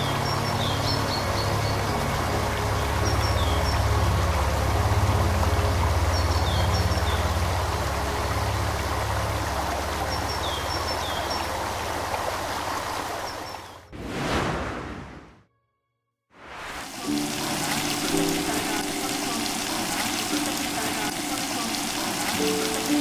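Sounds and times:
low background music: 0:00.0 - 0:13.2, 0:17.0 - 0:23.0
river flowing over rocks: 0:00.0 - 0:13.7, 0:16.8 - 0:23.0
small birds chirping: 0:02.8 - 0:04.2, 0:10.0 - 0:12.0, 0:12.8 - 0:13.9.

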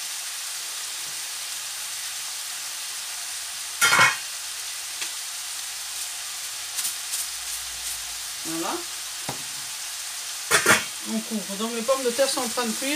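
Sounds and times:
meat sizzling in a frying pan: 0:00.0 - 0:12.9
kitchenware clattering: 0:03.8 - 0:04.2, 0:10.5 - 0:11.0.

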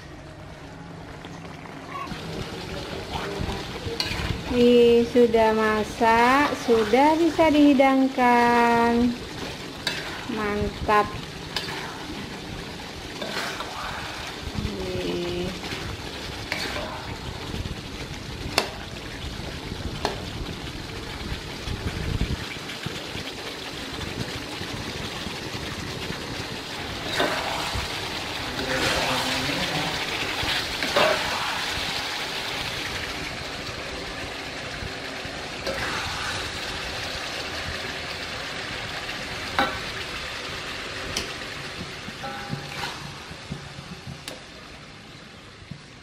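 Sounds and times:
liver sizzling in a pan: 0:02.0 - 0:46.0
spoon tapping on pan: 0:41.2 - 0:42.8.

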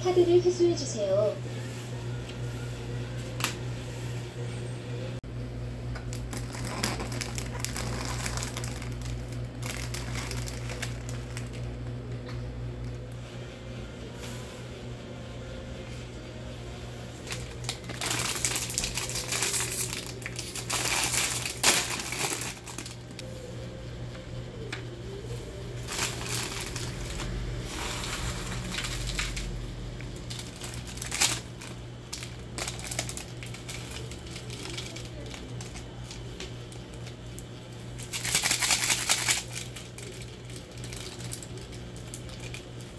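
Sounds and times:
steady low hum: 0:00.0 - 0:42.9
plastic packet crinkling and tearing: 0:06.0 - 0:11.9, 0:17.2 - 0:23.2, 0:25.8 - 0:42.9.

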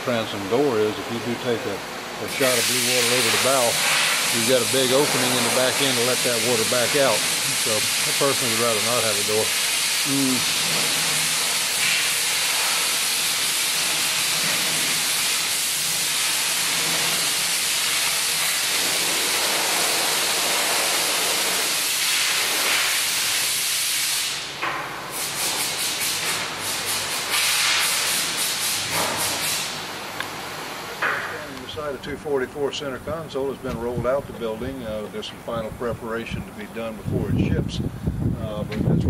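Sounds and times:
short hissing bursts: 0:02.3 - 0:29.8
hiss of rushing air: 0:02.3 - 0:29.9.

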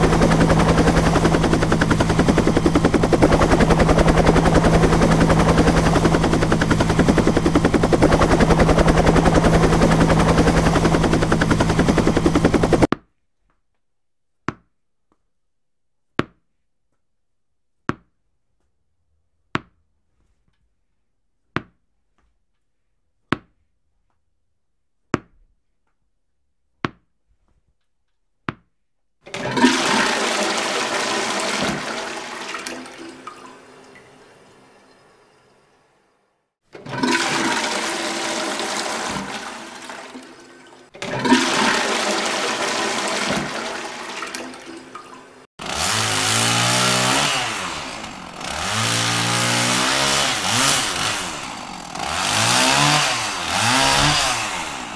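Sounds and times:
mechanical drone with hum: 0:00.0 - 0:12.9
toilet flushing: 0:00.0 - 0:12.9, 0:29.3 - 0:35.5, 0:36.8 - 0:45.5.

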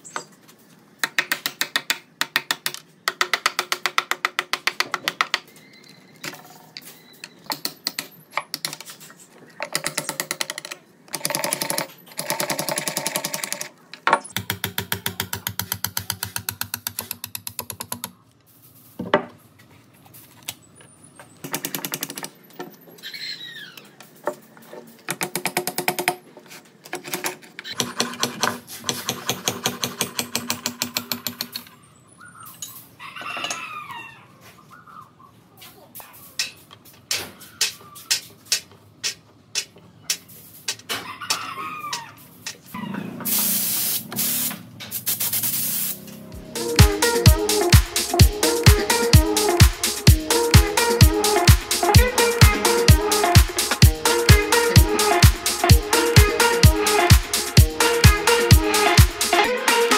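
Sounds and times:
bird chirping: 0:00.0 - 0:00.4, 0:05.4 - 0:07.6, 0:31.6 - 0:32.9, 0:37.3 - 0:38.5.

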